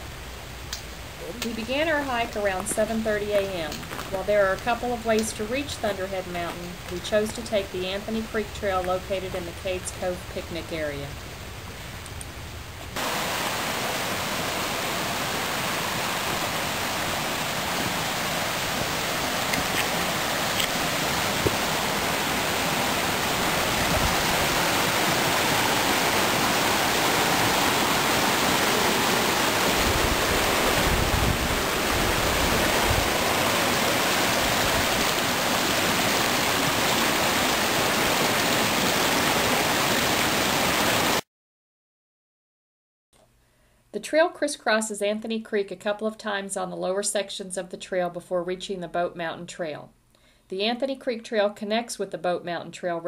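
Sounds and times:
stream rushing over rocks: 0:00.0 - 0:11.0, 0:13.0 - 0:41.2.

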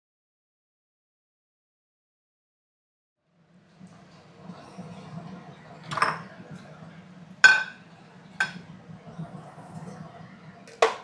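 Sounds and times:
steady low hum: 0:03.2 - 0:11.0.

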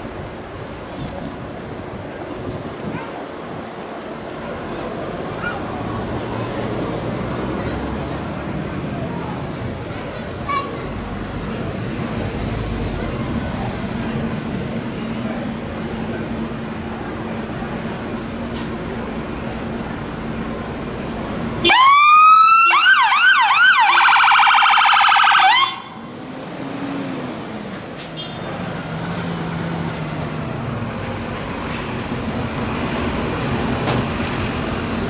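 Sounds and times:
fire engine siren wailing: 0:21.6 - 0:26.0.

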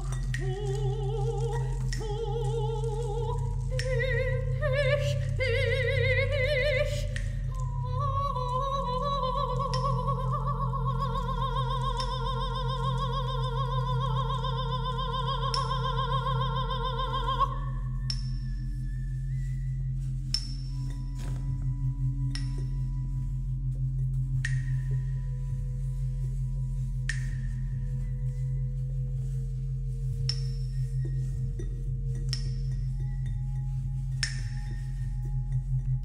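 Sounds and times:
soprano singing with vibrato: 0:00.0 - 0:18.2
low drone: 0:00.0 - 0:36.0.

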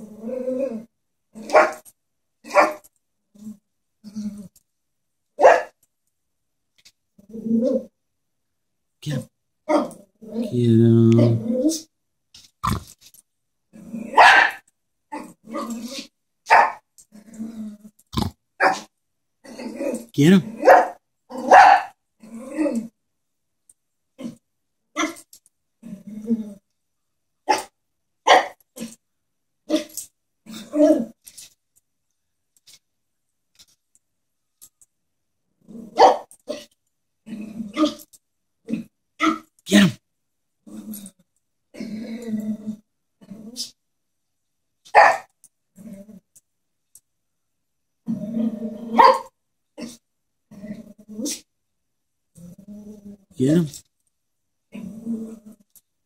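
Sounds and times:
small dog barking: 0:01.5 - 0:01.8, 0:02.5 - 0:02.8, 0:05.4 - 0:05.8, 0:14.1 - 0:14.6, 0:16.5 - 0:16.8, 0:18.6 - 0:18.9, 0:20.6 - 0:22.0, 0:27.5 - 0:27.7, 0:28.3 - 0:28.6, 0:36.0 - 0:36.3, 0:45.0 - 0:45.3, 0:49.0 - 0:49.3.

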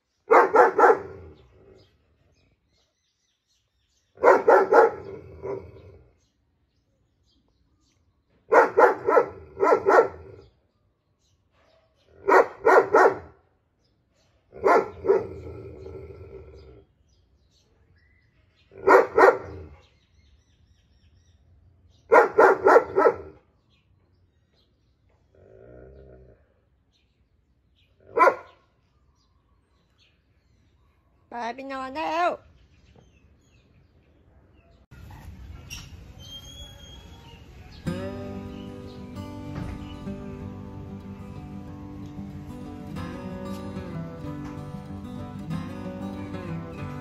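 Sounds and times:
dog barking loudly: 0:00.3 - 0:01.4, 0:04.2 - 0:05.8, 0:08.5 - 0:10.4, 0:12.2 - 0:13.3, 0:14.6 - 0:15.5, 0:18.8 - 0:19.9, 0:22.1 - 0:23.4, 0:28.1 - 0:28.6.

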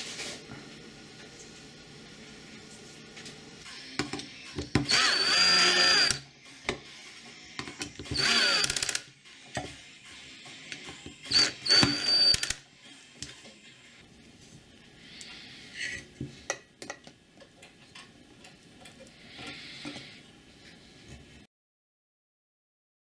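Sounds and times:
power drill motor whine: 0:04.8 - 0:06.3, 0:08.0 - 0:09.1, 0:11.3 - 0:12.6.

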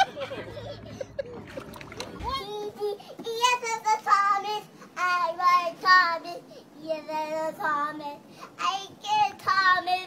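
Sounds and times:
toddler singing: 0:02.2 - 0:10.0.

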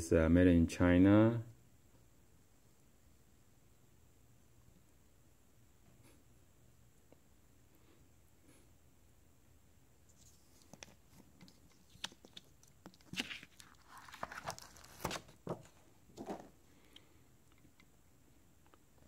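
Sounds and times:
packaging rustling and scraping: 0:10.2 - 0:16.5.

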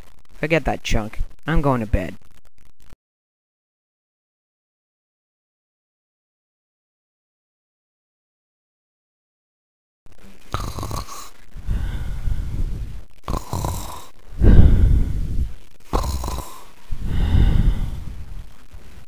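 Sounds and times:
person imitating snoring: 0:10.5 - 0:12.6, 0:13.2 - 0:15.2, 0:15.9 - 0:18.1.

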